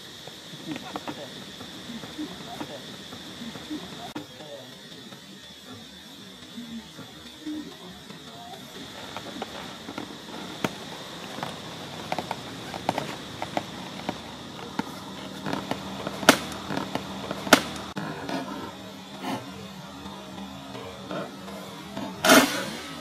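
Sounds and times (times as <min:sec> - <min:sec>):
sharp loud clicks: 0:00.0 - 0:23.0
balls rubbing on dry leaves: 0:08.6 - 0:23.0.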